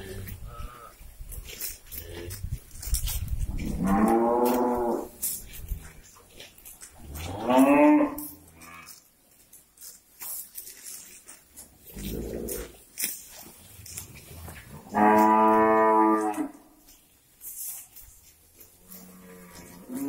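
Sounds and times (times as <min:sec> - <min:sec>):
cattle mooing: 0:03.7 - 0:05.1, 0:07.1 - 0:09.0, 0:14.4 - 0:16.6, 0:18.9 - 0:20.0.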